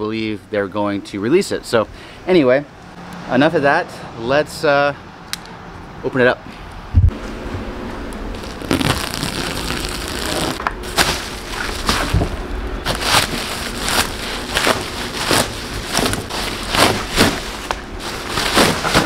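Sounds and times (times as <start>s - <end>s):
plastic wrap crinkling: 8.3s - 19.0s.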